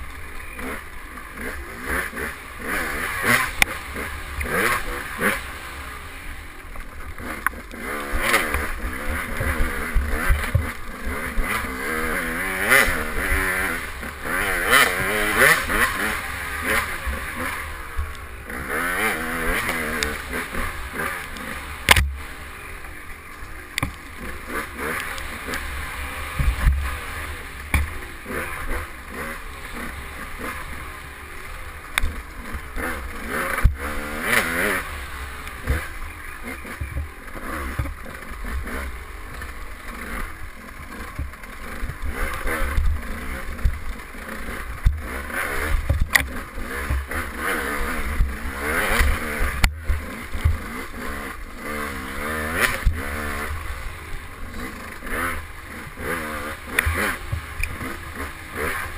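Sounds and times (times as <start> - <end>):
dirt bike engine revving: 0.0 - 58.9
bike knocking and clattering: 27.6 - 28.4, 36.6 - 40.2.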